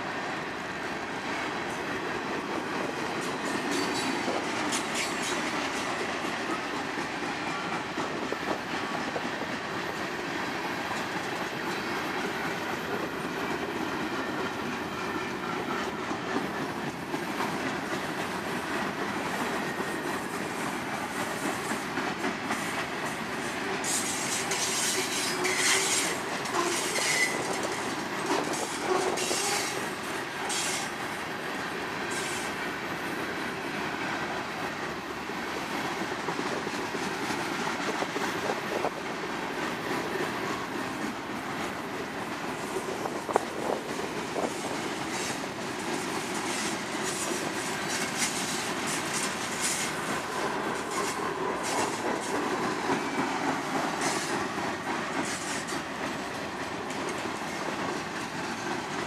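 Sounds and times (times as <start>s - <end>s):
train wheels rumbling on rails: 0.0s - 59.0s
clicking over rail joints: 1.7s - 10.1s, 10.9s - 31.0s, 35.7s - 59.0s
wheel squeals and clanks: 23.9s - 29.8s.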